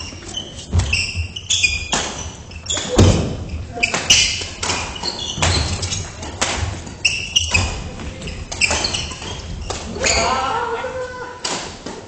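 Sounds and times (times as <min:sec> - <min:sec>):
shoe squeaks on wooden court: 0:00.0 - 0:06.3, 0:06.9 - 0:10.5
rackets hitting shuttlecock: 0:01.7 - 0:07.8, 0:08.5 - 0:10.3.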